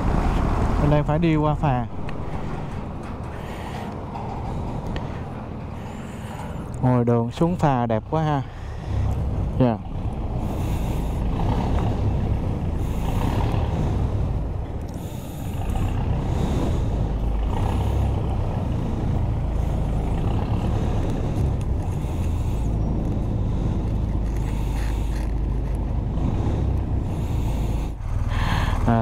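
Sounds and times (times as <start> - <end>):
engine idling with deep rumble: 0.0 - 29.0.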